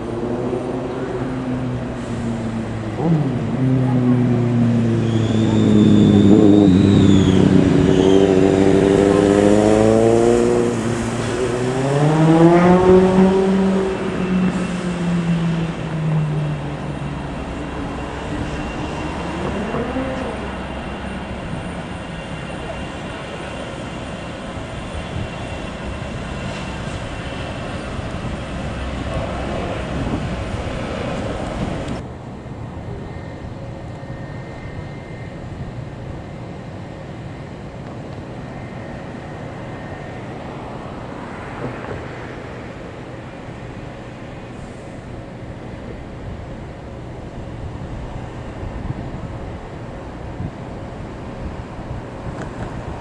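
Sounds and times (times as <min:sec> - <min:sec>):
jet engines rumbling and whining: 0:00.0 - 0:53.0
tone rising and falling: 0:00.1 - 0:22.4.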